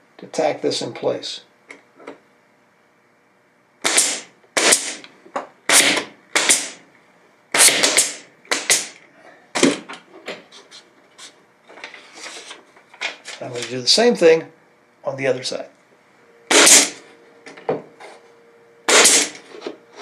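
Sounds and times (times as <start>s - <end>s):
nailer firing sharp shots: 3.8s - 5.0s, 5.7s - 6.8s, 7.5s - 9.0s, 16.5s - 17.0s, 18.9s - 19.4s.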